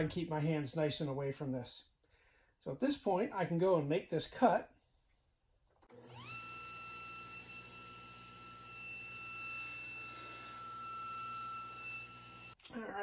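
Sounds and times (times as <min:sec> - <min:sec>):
table saw whine: 0:05.9 - 0:12.6.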